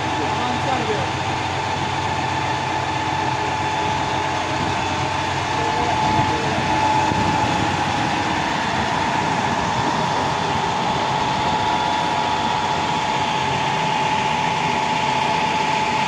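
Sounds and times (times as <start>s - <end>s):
diesel engine running: 0.0s - 16.0s
high whine: 0.0s - 16.0s.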